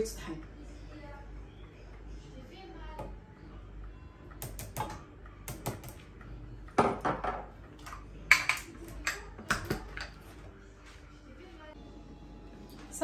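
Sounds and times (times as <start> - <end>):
kitchenware clinking and knocking: 6.7 - 10.4.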